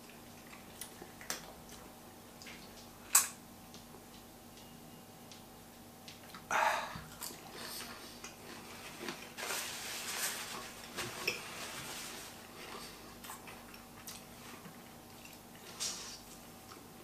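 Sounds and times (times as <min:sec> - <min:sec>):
paper napkin rustling: 0:08.6 - 0:12.9.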